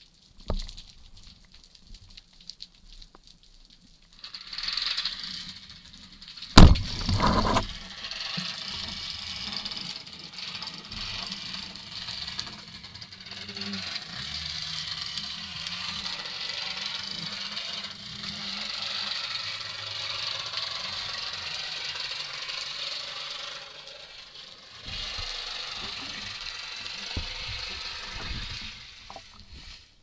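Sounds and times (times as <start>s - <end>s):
shaft and line rattling: 4.1s - 29.9s
speargun firing crack: 6.6s - 7.3s.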